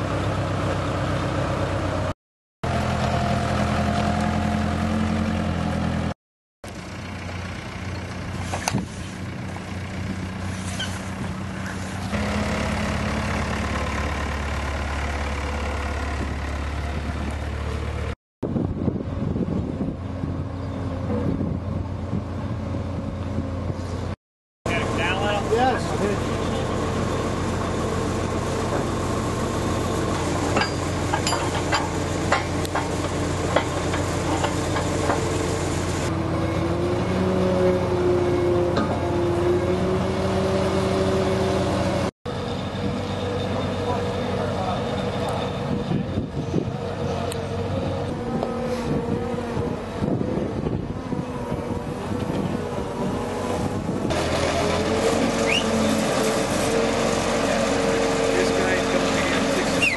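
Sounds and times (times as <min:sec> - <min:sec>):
engine running steadily: 0:06.7 - 0:59.9
metal clanks: 0:30.5 - 0:35.2.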